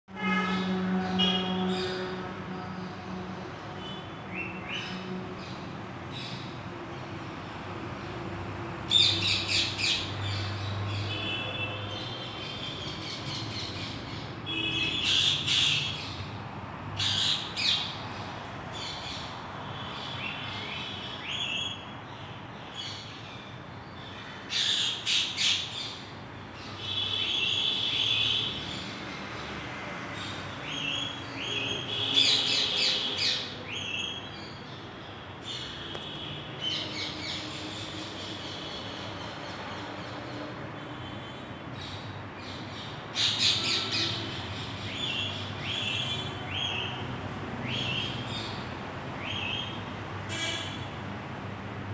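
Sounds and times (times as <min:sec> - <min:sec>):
parrots screeching and trilling: 0:12.5 - 0:16.3, 0:17.0 - 0:18.0, 0:41.8 - 0:47.0.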